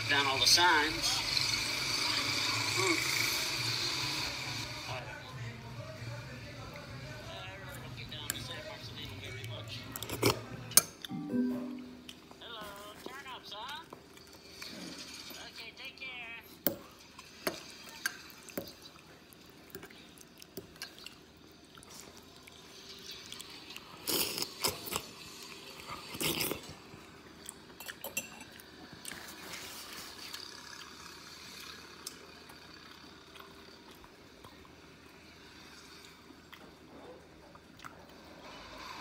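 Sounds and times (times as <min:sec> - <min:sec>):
faint room hum: 0:00.0 - 0:39.0.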